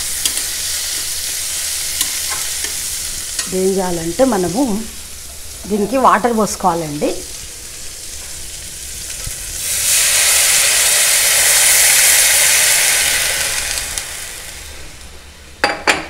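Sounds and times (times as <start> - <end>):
vegetables sizzling: 0.0 - 15.3
loud steam hiss: 9.5 - 15.0
water pouring into hot pan: 9.6 - 14.7.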